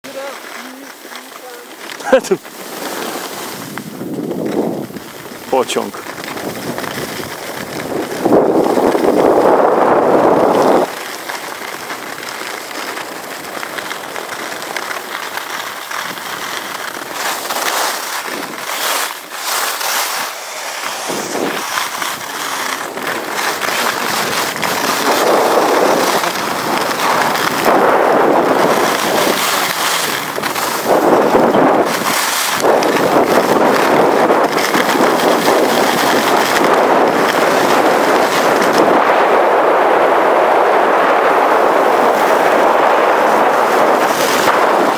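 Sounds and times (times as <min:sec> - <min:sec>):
wind on the microphone: 0:00.0 - 0:11.0, 0:20.1 - 0:44.9
skis scraping over hard snow: 0:00.0 - 0:44.9.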